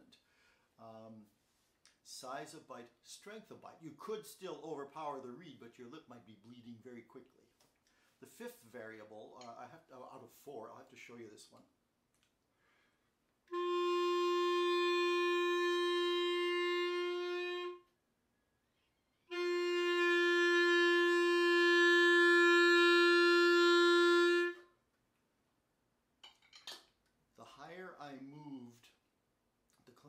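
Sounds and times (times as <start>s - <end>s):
clarinet long note: 13.5s - 17.9s, 19.3s - 24.7s.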